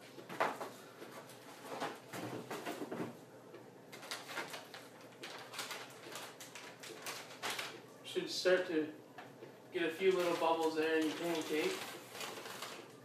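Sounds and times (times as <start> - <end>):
plastic pouch crinkling: 3.9 - 7.8, 10.0 - 13.0.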